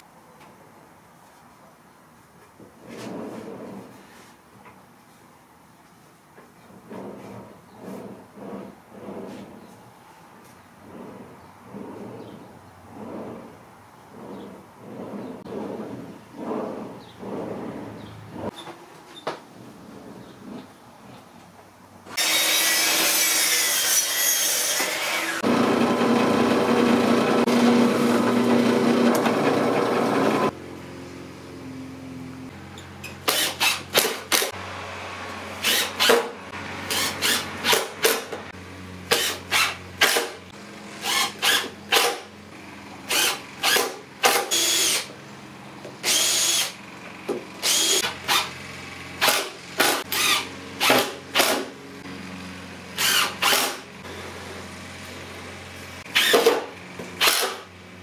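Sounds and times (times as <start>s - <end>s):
miter saw cutting plywood: 22.1s - 30.6s, 33.2s - 42.3s, 43.0s - 45.2s, 46.0s - 46.8s, 47.4s - 57.7s
cordless drill whining: 43.1s - 45.1s, 46.0s - 46.8s, 47.6s - 48.5s.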